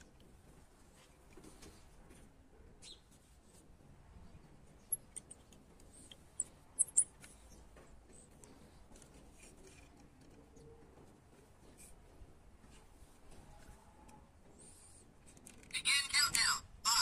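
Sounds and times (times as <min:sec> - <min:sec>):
small plastic and metal clicks: 0:04.8 - 0:07.5
faint scratching and rubbing: 0:07.3 - 0:15.4.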